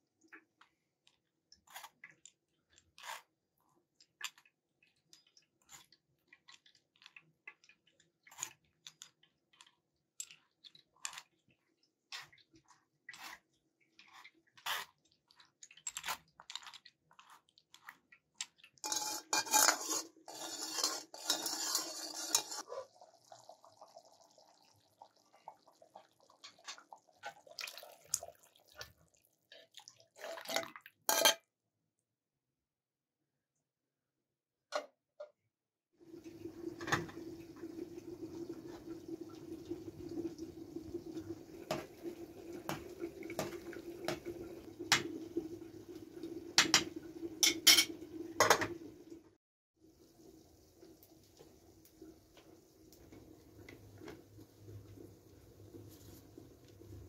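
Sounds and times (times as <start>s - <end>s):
metal spoon scraping a mesh sieve: 18.8s - 22.7s.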